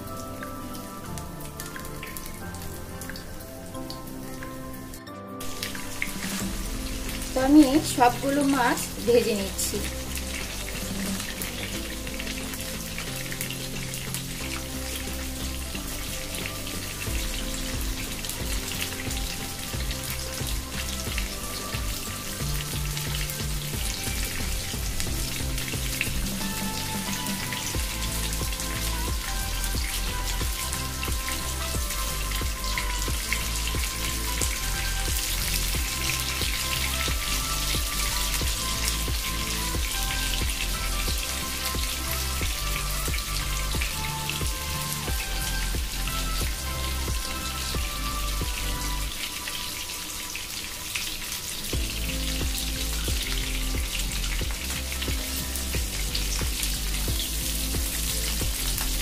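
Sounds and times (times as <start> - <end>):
background music: 0.0 - 59.0
prawns sizzling in hot oil: 0.0 - 59.0.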